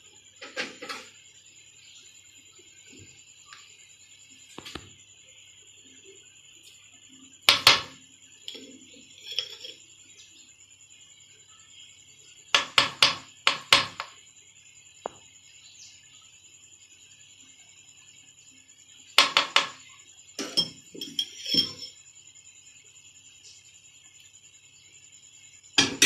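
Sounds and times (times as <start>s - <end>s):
faint high-pitched hum: 0.0s - 26.0s
spoon knocking on metal pot: 12.6s - 14.1s, 19.2s - 19.8s, 25.8s - 26.0s.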